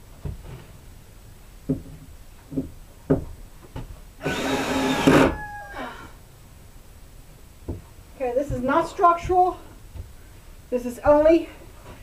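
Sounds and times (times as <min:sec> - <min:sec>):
cordless drill drilling into wood: 0:04.2 - 0:05.4.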